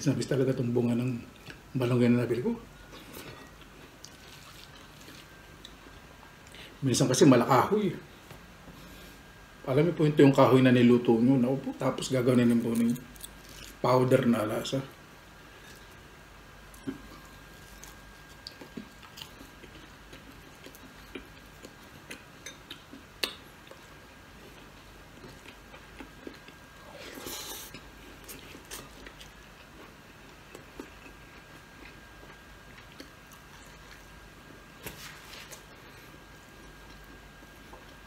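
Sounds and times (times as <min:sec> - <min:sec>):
person chewing crispy food: 0:02.9 - 0:06.6, 0:12.5 - 0:13.8, 0:16.7 - 0:38.0.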